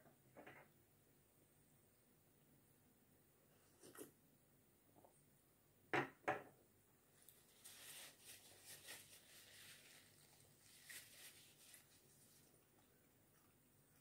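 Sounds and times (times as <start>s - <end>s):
paper napkin rustling: 7.2s - 12.6s.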